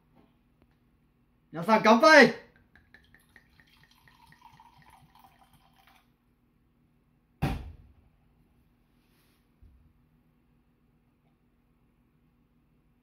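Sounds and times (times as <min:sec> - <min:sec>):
wine pouring into a mug: 0:02.7 - 0:06.2.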